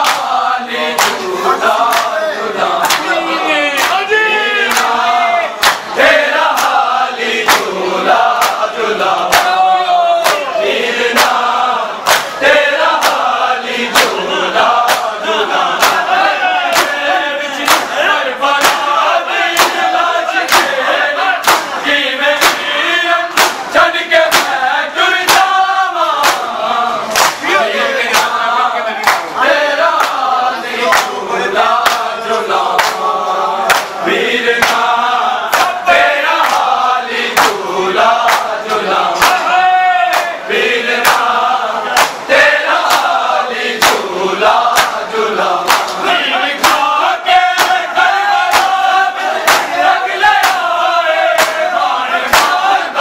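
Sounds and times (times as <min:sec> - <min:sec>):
men chanting together: 0:00.0 - 0:53.0
hands slapping bare chests: 0:01.0 - 0:01.2, 0:01.8 - 0:02.2, 0:02.8 - 0:03.1, 0:03.8 - 0:04.0, 0:04.7 - 0:05.0, 0:05.6 - 0:05.9, 0:06.5 - 0:06.8, 0:08.3 - 0:08.7, 0:09.3 - 0:09.6, 0:10.2 - 0:10.5, 0:12.0 - 0:12.4, 0:13.0 - 0:13.3, 0:13.9 - 0:14.2, 0:14.8 - 0:15.2, 0:15.8 - 0:16.1, 0:16.7 - 0:17.0, 0:17.6 - 0:17.9, 0:18.6 - 0:19.0, 0:19.6 - 0:20.8, 0:21.4 - 0:21.7, 0:22.4 - 0:22.6, 0:23.3 - 0:23.6, 0:24.3 - 0:24.6, 0:25.3 - 0:25.5, 0:26.2 - 0:26.5, 0:27.1 - 0:27.4, 0:28.1 - 0:28.4, 0:29.9 - 0:30.3, 0:30.9 - 0:31.2, 0:31.8 - 0:32.1, 0:32.7 - 0:33.0, 0:33.7 - 0:34.0, 0:34.6 - 0:34.9, 0:35.5 - 0:35.8, 0:36.4 - 0:36.7, 0:37.4 - 0:37.6, 0:38.2 - 0:38.6, 0:39.2 - 0:39.5, 0:41.0 - 0:41.3, 0:42.0 - 0:42.2, 0:42.8 - 0:43.2, 0:43.8 - 0:44.1, 0:44.7 - 0:45.0, 0:45.6 - 0:46.0, 0:47.6 - 0:47.8, 0:48.5 - 0:48.8, 0:49.4 - 0:49.7, 0:50.4 - 0:50.7, 0:51.4 - 0:51.6.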